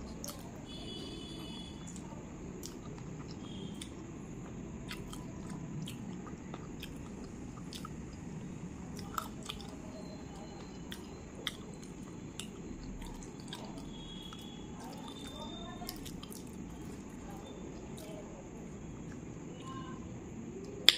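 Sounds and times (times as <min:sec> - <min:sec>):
person chewing food: 0:00.0 - 0:18.2
low background hum: 0:00.0 - 0:20.9
mouth clicks: 0:08.9 - 0:16.6.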